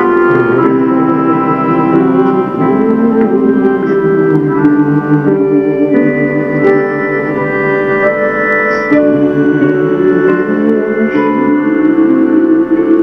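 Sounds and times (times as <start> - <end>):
accordion chords: 0.0 - 13.0
acoustic guitar plucking: 0.0 - 13.0
man singing: 0.0 - 13.0.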